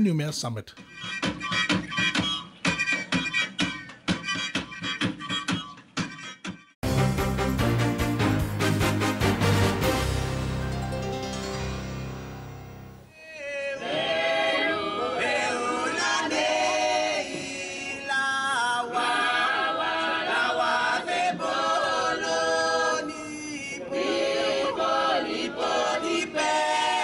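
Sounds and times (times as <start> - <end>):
theme tune: 6.8 - 13.2
choir singing in harmony: 13.2 - 27.0.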